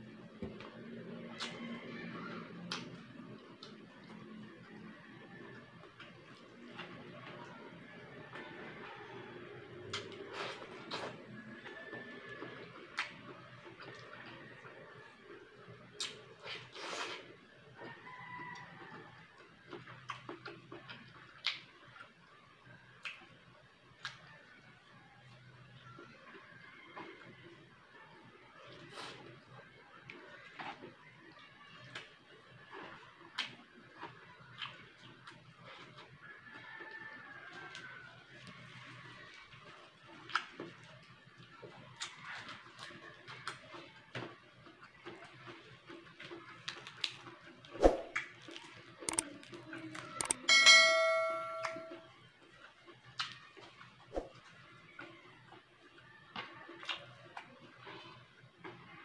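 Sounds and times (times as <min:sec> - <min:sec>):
chewing and lip smacks: 0:01.3 - 0:01.6, 0:09.9 - 0:17.4, 0:18.6 - 0:22.3, 0:23.0 - 0:23.4, 0:28.6 - 0:36.2, 0:39.3 - 0:50.4, 0:52.6 - 0:58.9
wet mouth clicks while chewing: 0:15.9 - 0:17.2, 0:19.7 - 0:22.1, 0:48.1 - 0:50.4, 0:53.1 - 0:53.4, 0:56.3 - 0:58.8.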